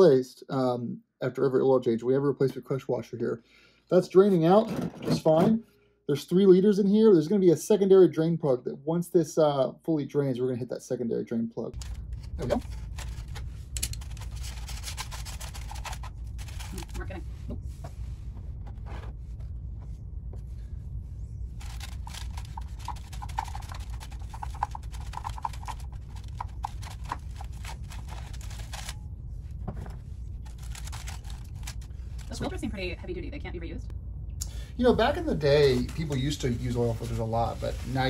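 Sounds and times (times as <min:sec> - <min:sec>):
steady low hum: 0:04.1 - 0:38.0
aluminium foil crackling: 0:11.8 - 0:17.4, 0:21.5 - 0:29.1, 0:30.3 - 0:32.8, 0:35.3 - 0:38.0.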